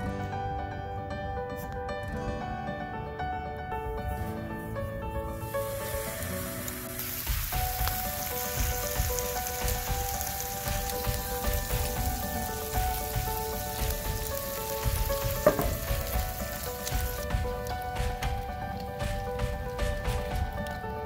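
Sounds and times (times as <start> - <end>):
bacon sizzling in a skillet: 5.3 - 20.9.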